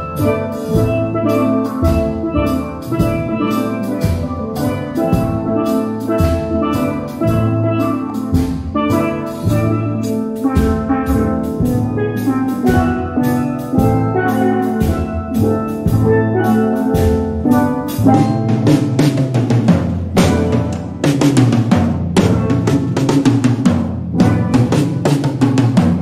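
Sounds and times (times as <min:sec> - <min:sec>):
drum kit: 0:00.0 - 0:26.0
steel pan band playing: 0:00.0 - 0:26.0.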